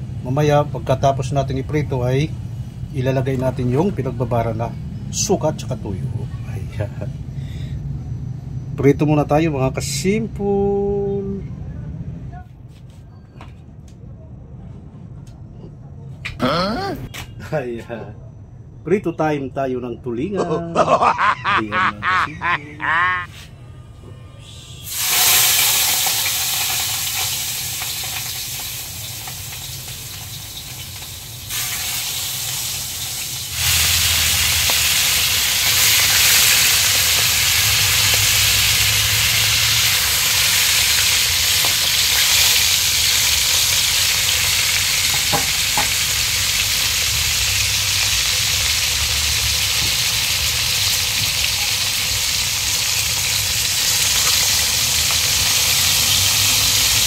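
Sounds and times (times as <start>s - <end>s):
fish sizzling in hot oil: 24.9s - 57.0s.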